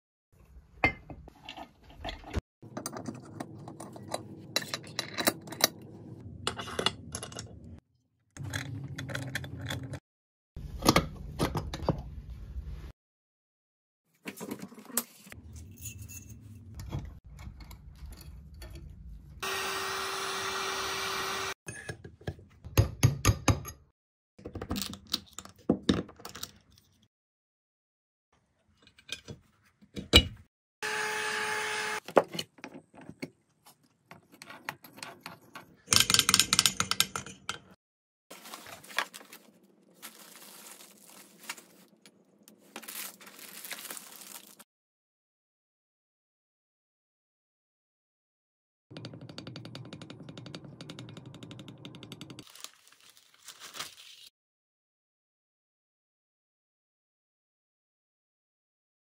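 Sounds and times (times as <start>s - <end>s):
small power tool running: 19.4s - 21.6s, 30.8s - 32.0s.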